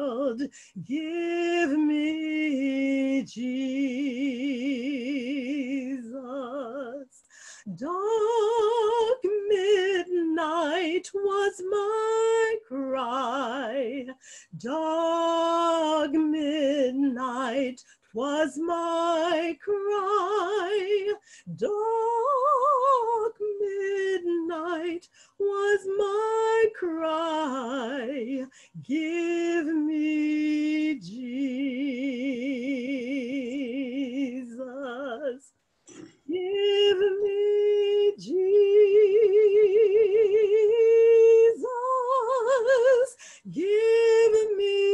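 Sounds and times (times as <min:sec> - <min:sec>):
woman singing: 0:00.0 - 0:35.6, 0:36.2 - 0:44.9.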